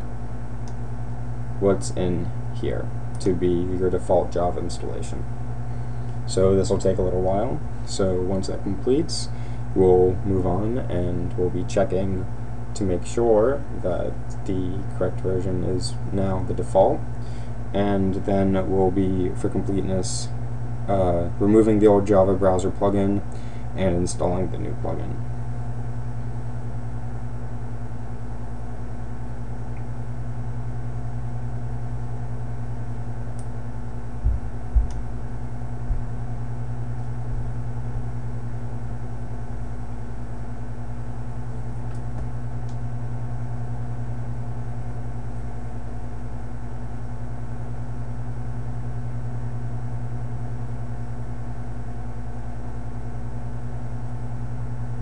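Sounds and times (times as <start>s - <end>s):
low droning hum: 0.0s - 55.0s
short low thumps: 34.2s - 36.3s, 37.1s - 38.0s.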